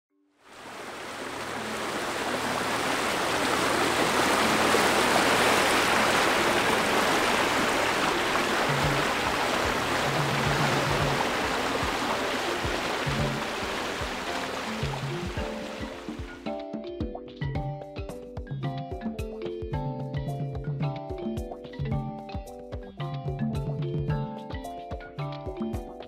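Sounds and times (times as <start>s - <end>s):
water rushing: 0.4s - 16.6s
music with low notes: 5.9s - 26.0s.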